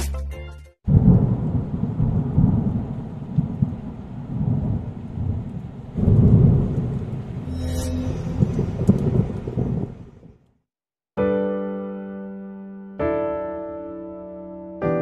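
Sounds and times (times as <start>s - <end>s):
rolling thunder rumbling: 0.9s - 7.5s, 8.3s - 10.4s.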